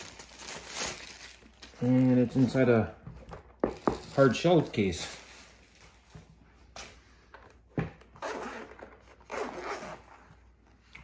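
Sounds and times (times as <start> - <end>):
case zipper unzipping: 8.2 - 10.2.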